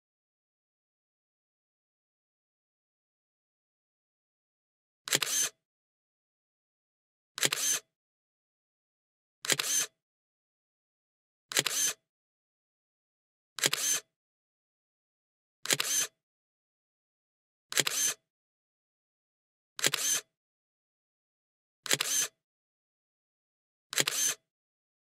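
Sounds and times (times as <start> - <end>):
camera shutter click: 5.1 - 5.6, 7.4 - 7.8, 9.4 - 9.9, 11.5 - 12.0, 13.6 - 14.0, 15.6 - 16.1, 17.7 - 18.2, 19.8 - 20.2, 21.9 - 22.3, 23.9 - 24.4.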